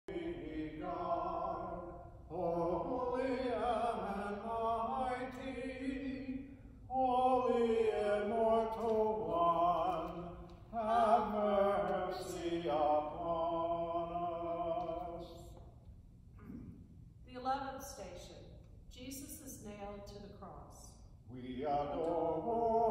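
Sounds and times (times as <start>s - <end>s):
voices singing a hymn: 0.0s - 15.6s, 21.3s - 22.9s.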